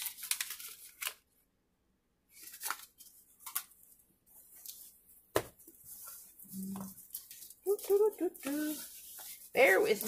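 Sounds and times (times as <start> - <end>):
canvas and paper rustling: 2.3 - 10.0.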